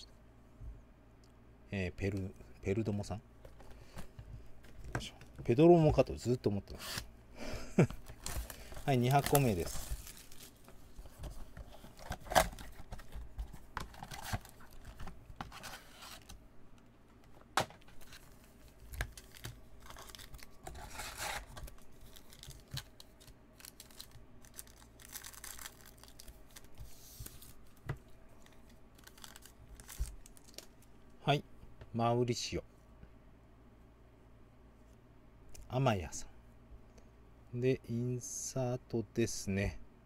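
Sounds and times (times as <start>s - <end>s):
plastic wrappers crinkling: 7.8s - 16.3s, 17.9s - 30.9s.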